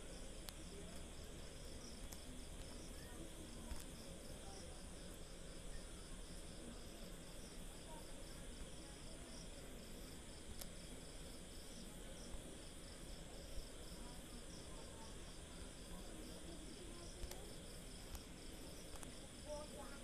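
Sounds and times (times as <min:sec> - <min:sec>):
background hiss and hum: 0:00.0 - 0:20.0
faint click: 0:03.6 - 0:04.0, 0:10.5 - 0:10.8, 0:17.1 - 0:17.4, 0:18.9 - 0:19.2.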